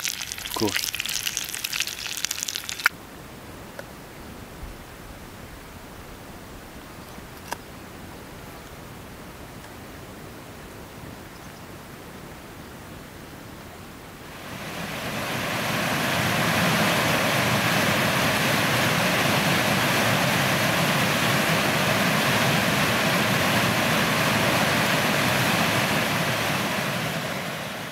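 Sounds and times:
waterfall rushing over rocks: 14.3 - 27.9.

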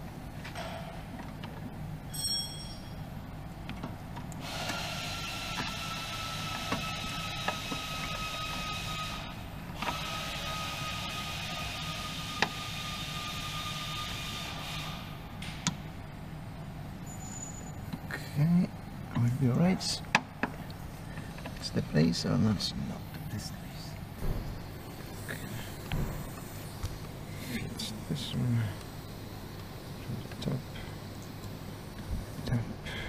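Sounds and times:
machine whining: 4.3 - 15.8.

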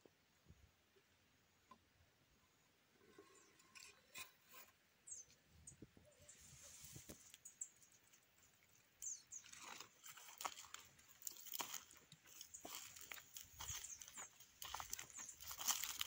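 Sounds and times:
faint rustles and ticks: 6.3 - 16.0.

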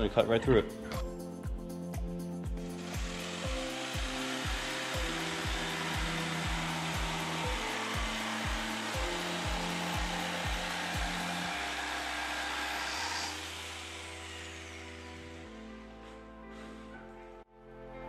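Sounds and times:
background music with steady beat: 0.0 - 18.0
jigsaw cutting wood board: 2.7 - 15.9.

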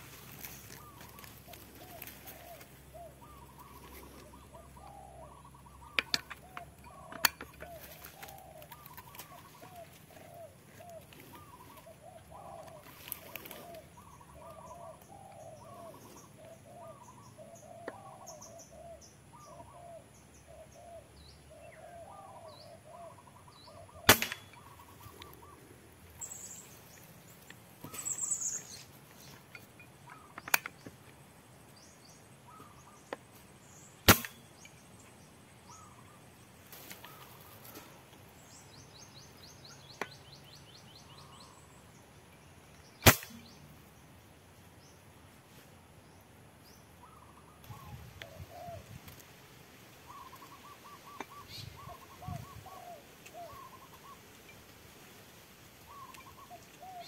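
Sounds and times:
faint high bird chirps: 0.0 - 30.9, 55.9 - 57.0
air rifle shots: 24.1 - 24.6, 34.0 - 34.5, 43.0 - 43.6.

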